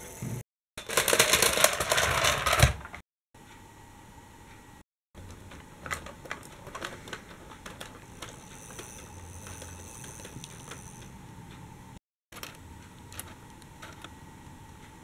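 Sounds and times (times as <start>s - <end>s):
toy train wheels clicking on track: 6.7s - 11.2s.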